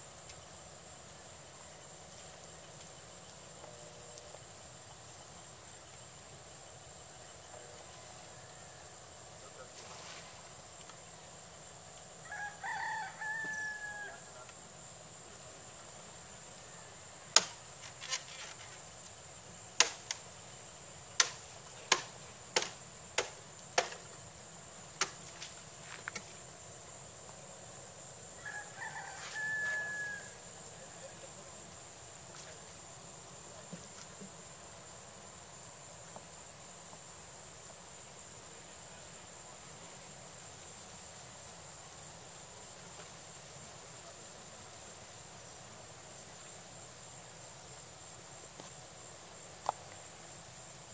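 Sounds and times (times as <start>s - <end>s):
rooster crowing: 12.2s - 14.4s, 28.4s - 30.9s.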